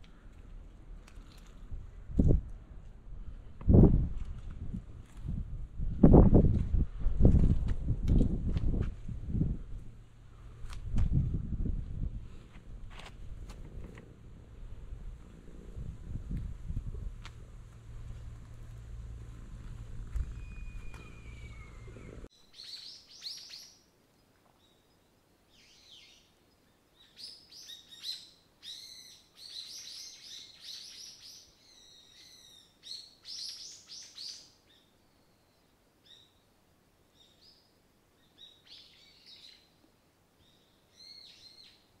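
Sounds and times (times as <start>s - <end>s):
small birds chirping: 13.4s - 23.9s, 24.5s - 39.8s, 40.4s - 42.0s.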